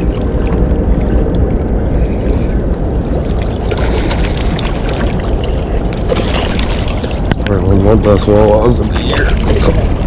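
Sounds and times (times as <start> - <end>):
water rumbling: 0.0 - 10.0
wind: 0.0 - 10.0
fish thrashing and splashing: 2.1 - 7.4.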